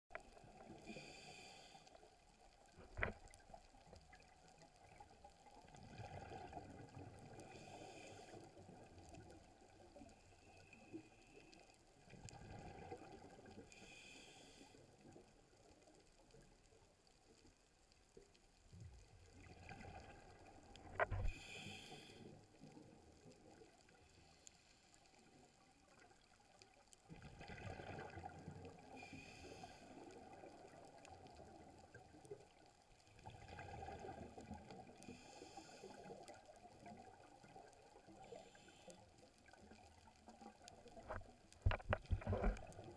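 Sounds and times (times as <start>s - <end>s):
scuba regulator hiss: 0.9s - 1.8s, 13.8s - 14.7s, 21.3s - 22.3s
exhaled bubbles gurgling: 2.8s - 10.1s, 12.0s - 13.7s, 19.1s - 22.1s, 27.0s - 38.7s, 39.4s - 42.9s.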